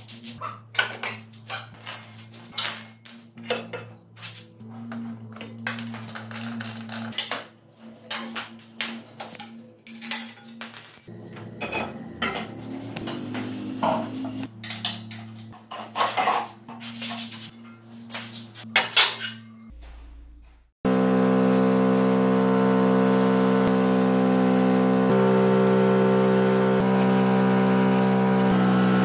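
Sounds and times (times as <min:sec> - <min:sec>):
metal tools clanking: 0:09.3 - 0:16.7.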